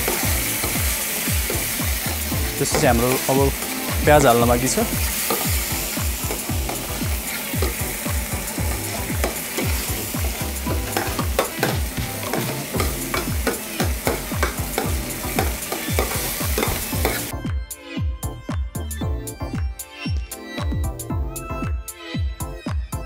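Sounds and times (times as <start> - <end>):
sauce sizzling in a pan: 0.0 - 17.3.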